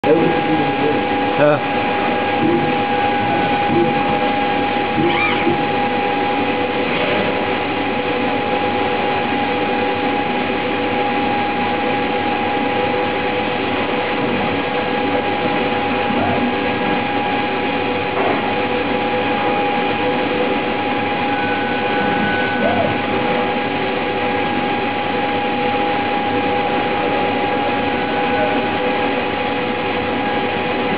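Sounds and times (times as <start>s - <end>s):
machinery hum with whining tones: 0.0s - 30.9s.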